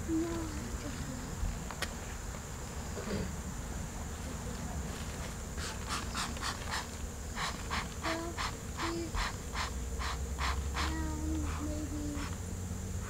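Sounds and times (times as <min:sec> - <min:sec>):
bellows puffing: 0:05.6 - 0:12.4.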